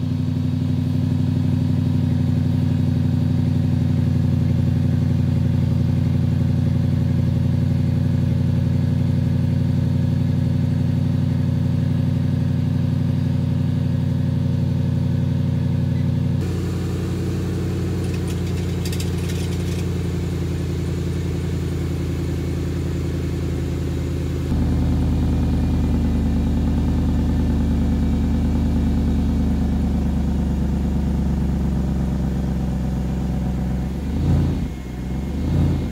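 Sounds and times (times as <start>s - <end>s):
car engine idling: 0.0s - 35.9s
engine revving: 16.4s - 27.2s, 33.8s - 35.9s.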